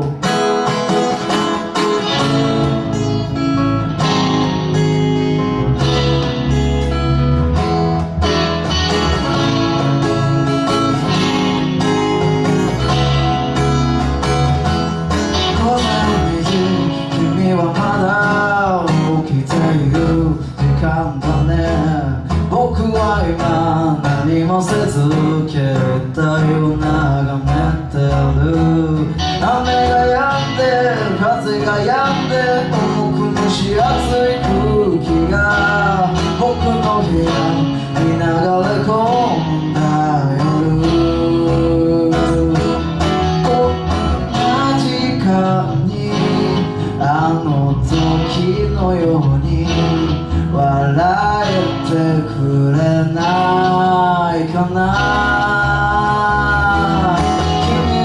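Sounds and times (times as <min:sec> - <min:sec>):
electric bass: 0:00.0 - 0:58.0
electric guitar: 0:00.0 - 0:58.0
strummed acoustic guitar: 0:00.0 - 0:58.0
man singing: 0:15.1 - 0:58.0.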